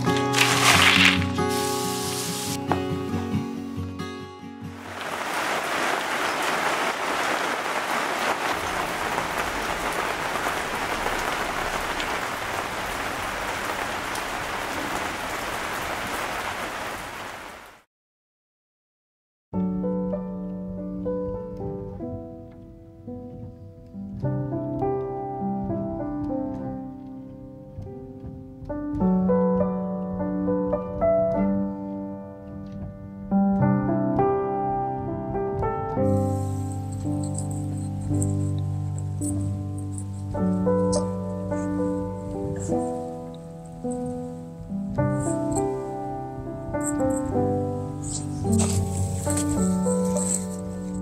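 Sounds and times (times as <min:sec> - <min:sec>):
rain pattering: 0:00.0 - 0:02.8, 0:04.6 - 0:17.9, 0:36.0 - 0:51.0
slow piano music: 0:00.0 - 0:07.3, 0:19.6 - 0:51.0.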